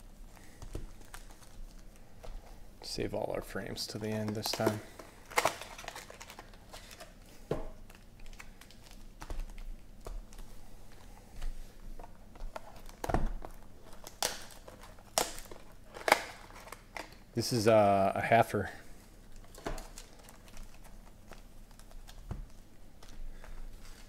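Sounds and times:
card wrappers crinkling and tearing: 0.2 - 11.5, 12.1 - 17.6, 19.1 - 24.0.

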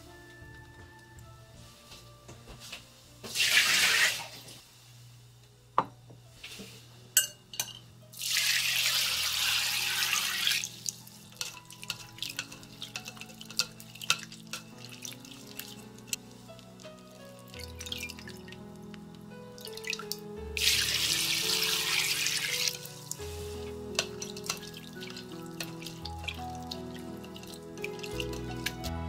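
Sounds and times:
soft background music: 0.0 - 29.0
water pouring: 3.3 - 4.5, 8.2 - 16.2, 17.5 - 18.6, 19.6 - 23.4, 24.0 - 28.8
water dripping: 8.2 - 16.2, 17.5 - 18.9, 24.0 - 28.8.

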